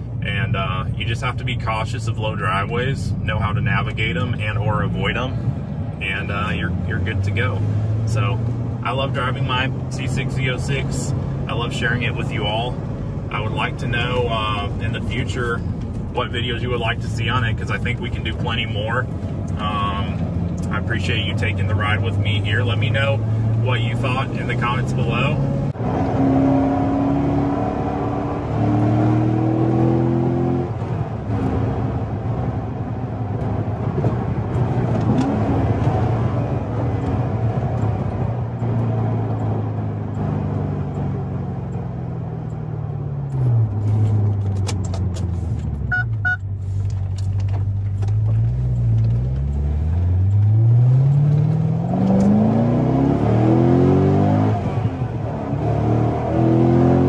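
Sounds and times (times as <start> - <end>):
car engine accelerating: 0.0 - 57.0
short electronic beep: 45.9 - 46.5.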